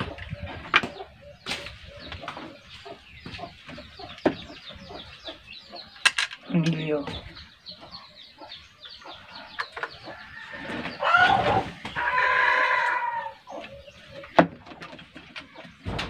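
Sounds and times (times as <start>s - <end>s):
chickens clucking faintly: 0.0s - 16.0s
rooster crowing: 10.3s - 13.4s.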